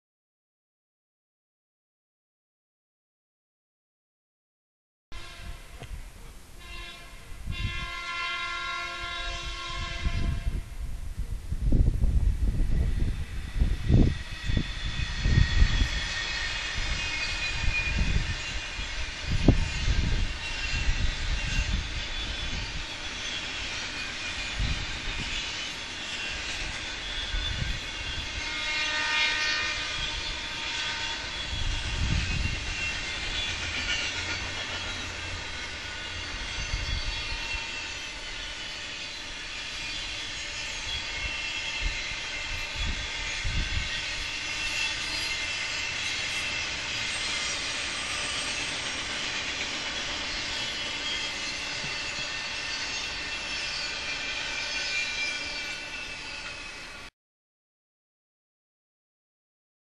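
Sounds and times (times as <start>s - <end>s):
train wheels ringing on rails: 6.6s - 10.7s, 12.5s - 57.1s.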